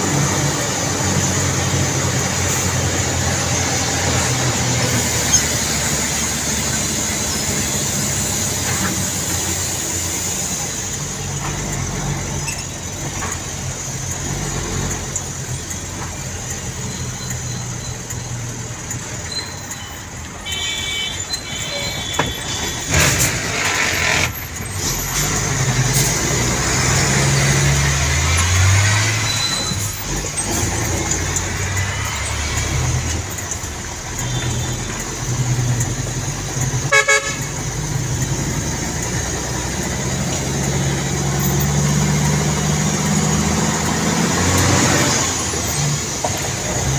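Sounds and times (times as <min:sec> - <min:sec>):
vehicle engine humming: 0:00.0 - 0:46.9
stuttering horn beep: 0:19.3 - 0:24.3
knocks: 0:22.1 - 0:22.8
short horn toots: 0:36.9 - 0:37.4.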